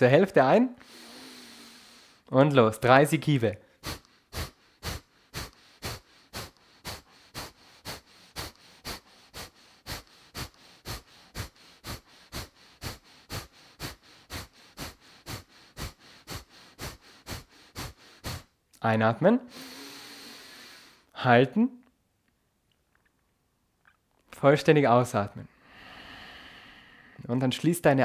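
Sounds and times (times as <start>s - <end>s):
man exhaling sharply through nose: 0.8s - 2.2s, 3.6s - 18.5s, 19.5s - 21.1s, 25.6s - 27.2s.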